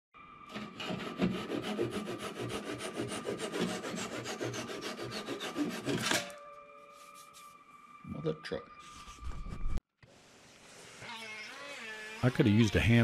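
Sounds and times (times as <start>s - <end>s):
tool scraping on wood: 0.5s - 6.3s.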